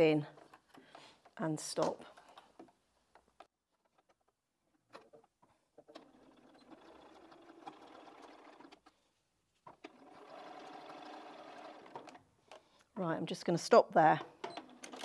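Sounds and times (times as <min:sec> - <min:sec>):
sewing machine stitching: 0:05.8 - 0:08.9, 0:09.7 - 0:12.2
sewing machine clicks: 0:14.4 - 0:15.0.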